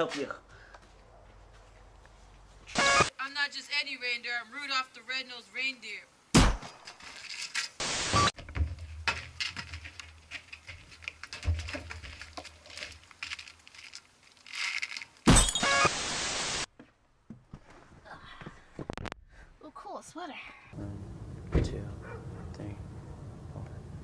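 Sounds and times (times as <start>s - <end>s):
tv static hiss: 2.7s - 6.3s, 7.8s - 8.4s, 15.6s - 16.7s.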